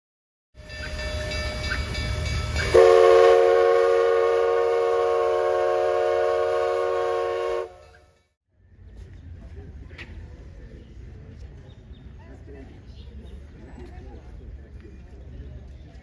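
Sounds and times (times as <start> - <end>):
steam locomotive chime whistle: 0.6 - 8.2.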